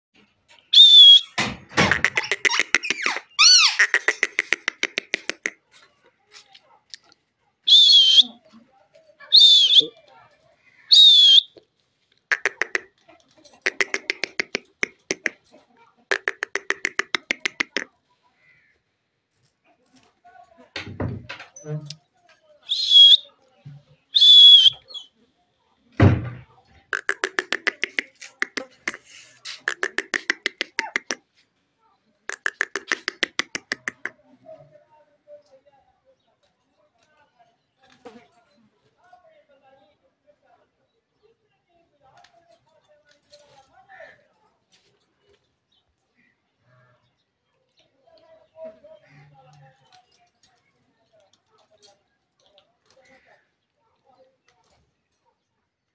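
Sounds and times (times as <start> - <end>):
parakeet calling: 0.8 - 5.5, 12.3 - 12.9
parakeet screeching: 1.9 - 4.4
parakeet clicking chatter: 1.9 - 5.6, 12.3 - 12.9, 13.6 - 15.4, 16.1 - 17.9, 26.9 - 31.2, 32.3 - 34.2.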